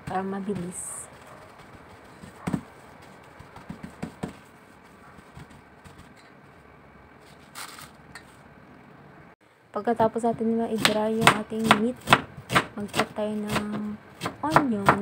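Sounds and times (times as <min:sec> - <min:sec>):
paper rustling: 0:00.5 - 0:06.6, 0:07.2 - 0:08.4.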